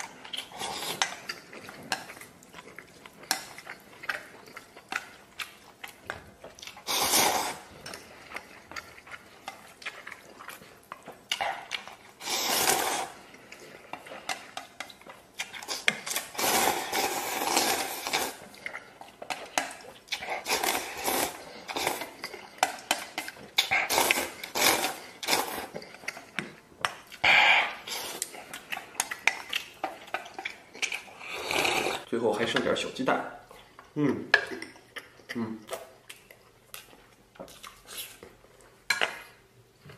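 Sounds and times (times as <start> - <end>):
noodles being slurped: 6.6 - 14.7, 15.4 - 26.3, 27.2 - 32.1.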